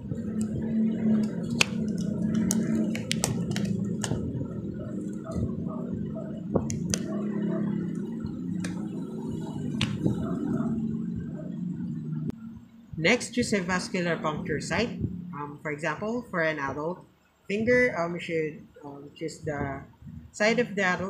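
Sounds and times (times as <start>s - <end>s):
steady low hum: 0.0s - 21.0s
rubber gloves snapping and squishing: 1.2s - 4.2s.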